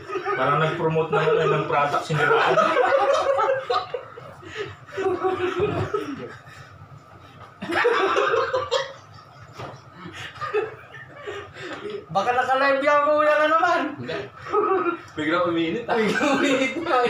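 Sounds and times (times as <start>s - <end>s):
men laughing: 0.0s - 6.8s, 7.6s - 12.2s, 14.0s - 15.2s, 15.9s - 17.0s.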